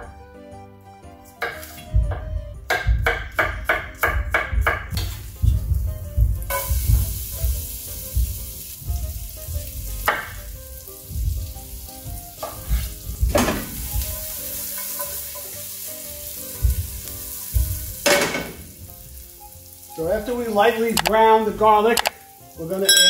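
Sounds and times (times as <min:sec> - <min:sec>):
faint background music: 0:00.0 - 0:23.0
garlic sizzling in hot oil: 0:04.9 - 0:23.0.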